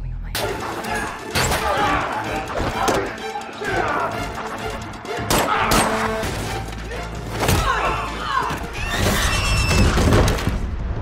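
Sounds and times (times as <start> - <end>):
dramatic score music: 0.4 - 11.0
fighters grunting: 0.9 - 4.2.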